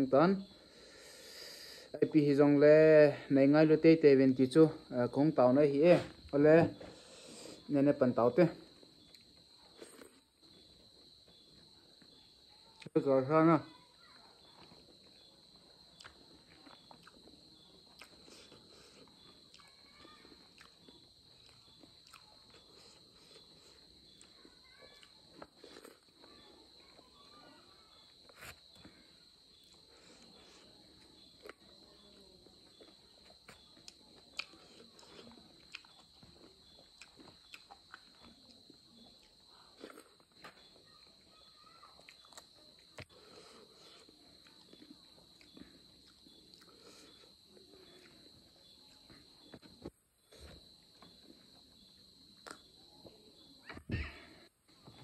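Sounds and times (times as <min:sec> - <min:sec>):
crickets chirring: 0:00.0 - 0:55.0
eating by hand: 0:08.6 - 0:12.9, 0:14.1 - 0:41.3, 0:41.9 - 0:52.7.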